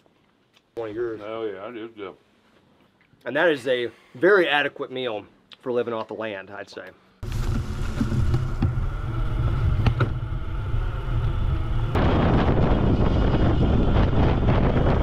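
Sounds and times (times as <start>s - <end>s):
bike riding rumble on dirt: 7.2s - 15.0s
wind buffeting microphone: 7.3s - 15.0s.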